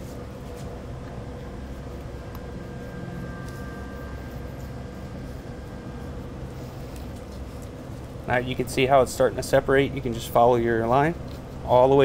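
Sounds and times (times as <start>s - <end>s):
low background hum: 0.0s - 12.0s
faint mid-pitched tone: 1.1s - 6.6s.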